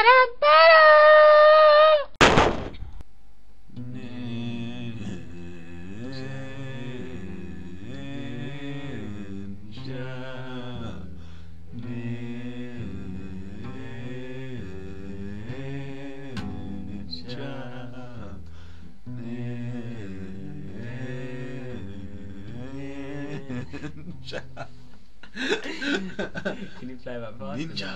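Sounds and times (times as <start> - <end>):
slow chant-like singing: 3.7 - 24.7.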